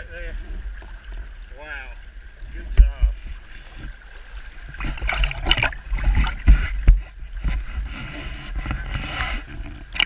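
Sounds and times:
stream rushing: 0.0s - 10.0s
water splashing in a net: 2.8s - 6.7s.

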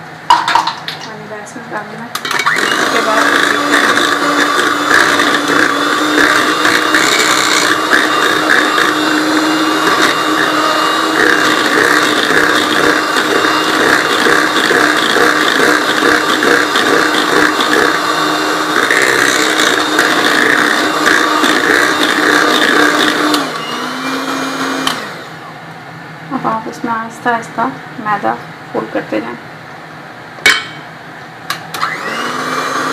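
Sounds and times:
electric mixer beating batter: 2.1s - 25.4s, 31.8s - 32.9s.

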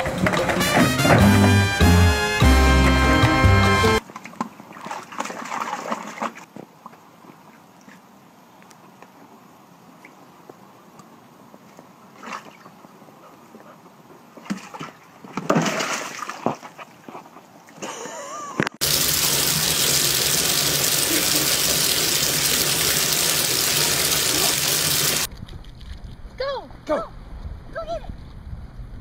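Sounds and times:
bathtub faucet running hard: 18.8s - 25.3s.

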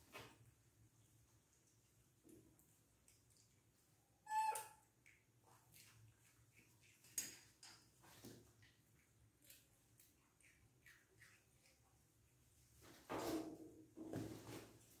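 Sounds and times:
monkey squeak: 4.3s - 4.8s.

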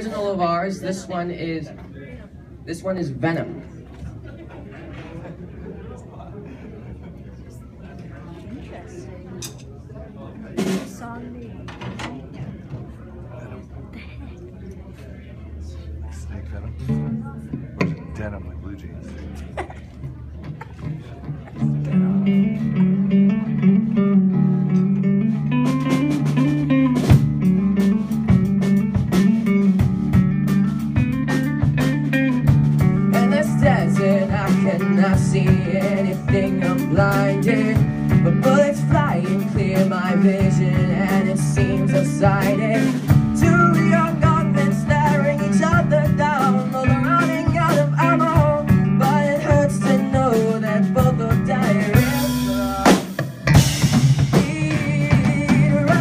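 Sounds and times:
drum kit beat: 10.6s - 11.2s, 24.8s - 56.0s
bass guitar: 16.1s - 56.0s
electric guitar: 20.5s - 56.0s.

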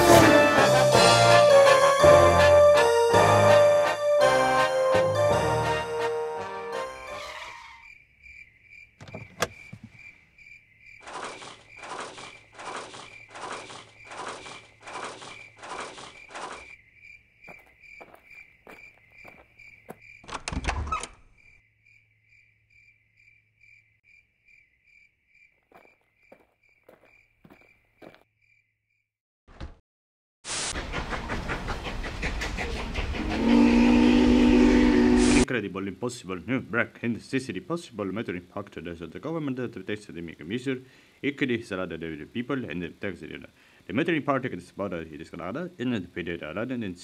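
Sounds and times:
music: 0.0s - 7.4s
crickets chirping: 7.1s - 29.1s.

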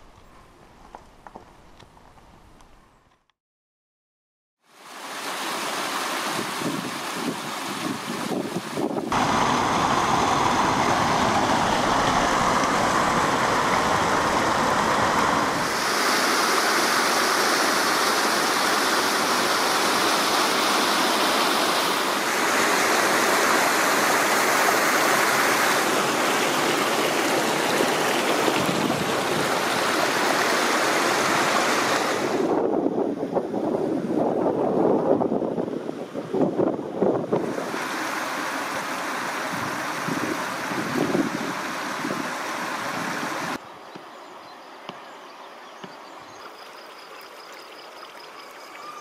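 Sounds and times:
waterfall rushing over rocks: 4.8s - 32.5s, 37.4s - 43.6s.

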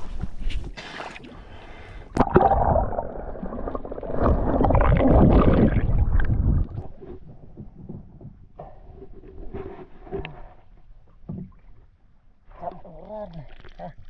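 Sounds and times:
sea water splashing: 0.8s - 7.2s
muffled underwater bubbling: 2.2s - 7.0s.

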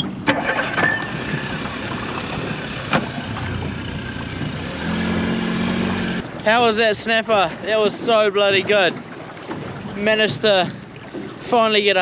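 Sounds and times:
outboard motor running: 0.0s - 12.0s
wind: 0.0s - 12.0s
sharp knocks: 1.6s - 3.8s.

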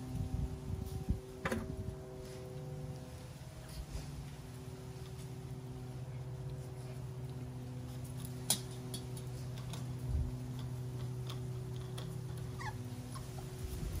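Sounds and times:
low hum: 0.0s - 14.0s
puppy whimpering: 12.5s - 13.5s.

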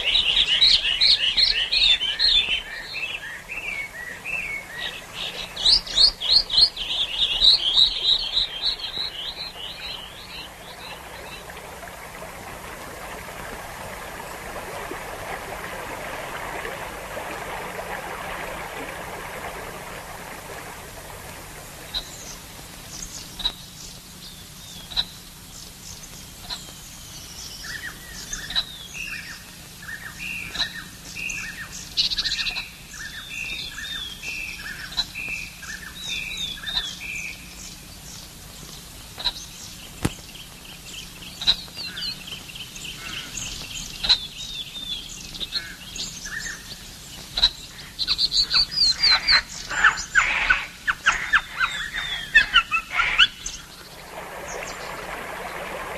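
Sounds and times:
birds chirping and calling: 38.7s - 55.6s.

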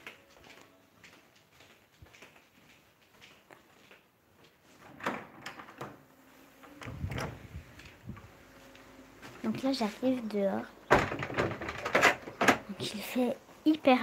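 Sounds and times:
door rumbling rattle: 6.8s - 8.3s, 10.9s - 12.7s
door knocks: 10.9s - 12.7s.

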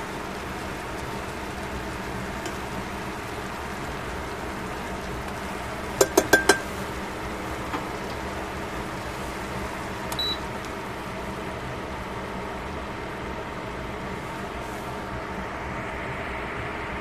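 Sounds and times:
metal tongs clinking on steel pot: 6.0s - 6.7s.

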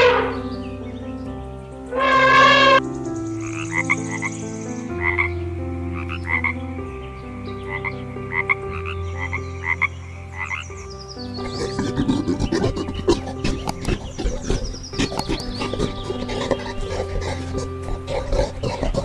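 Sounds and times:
elephant trumpeting: 0.0s - 0.5s, 1.9s - 2.8s, 11.4s - 19.0s
frog croaking: 1.9s - 6.6s, 7.6s - 19.0s.

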